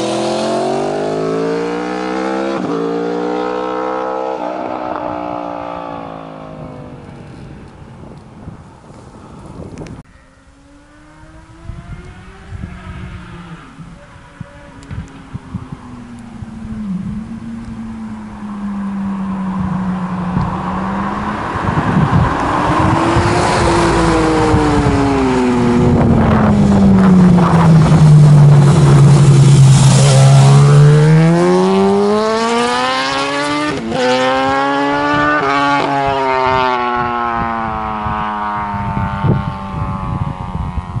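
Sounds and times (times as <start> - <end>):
motorcycle passing by: 10.2 - 41.0.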